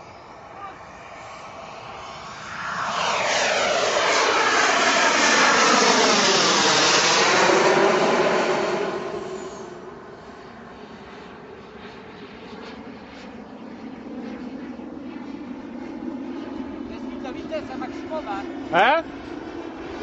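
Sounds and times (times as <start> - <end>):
model jet turbine rush: 0.0 - 12.1.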